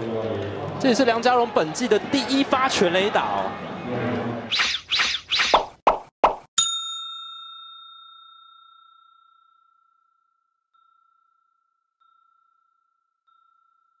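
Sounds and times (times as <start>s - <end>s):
bell-like ding: 6.6s - 10.2s.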